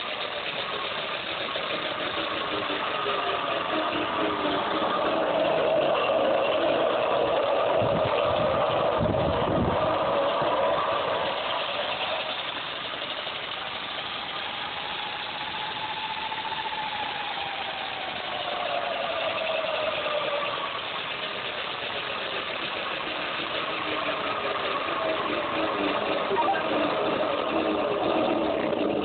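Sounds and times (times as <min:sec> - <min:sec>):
electric motor whine: 0:01.2 - 0:29.0
mechanical whirr: 0:01.3 - 0:29.0.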